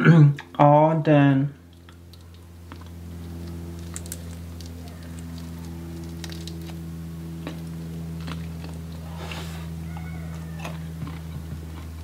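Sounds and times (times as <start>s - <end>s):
low hum: 0.0s - 12.0s
shrimp shell crackling: 1.7s - 6.8s.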